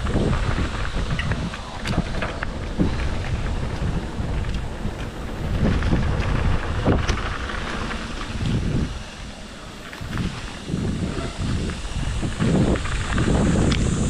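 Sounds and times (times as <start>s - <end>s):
bike knocking over bumps: 0.0s - 9.0s
tyres rumbling on rocky ground: 0.0s - 14.0s
wind buffeting microphone: 0.0s - 14.0s.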